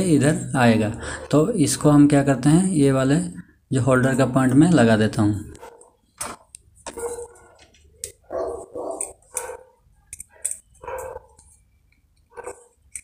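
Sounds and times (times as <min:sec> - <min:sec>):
dog barking: 0:05.6 - 0:06.0, 0:06.9 - 0:07.6, 0:08.2 - 0:09.8, 0:10.8 - 0:11.4, 0:12.3 - 0:12.8.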